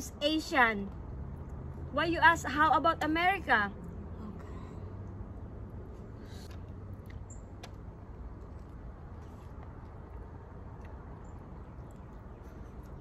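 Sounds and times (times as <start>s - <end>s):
chewing and sucking smacks: 9.2s - 13.0s.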